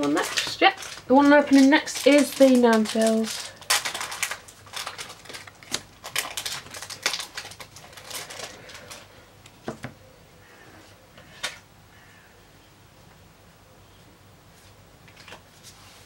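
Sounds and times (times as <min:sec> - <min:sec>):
foil wrapper crinkling: 0:00.0 - 0:09.2.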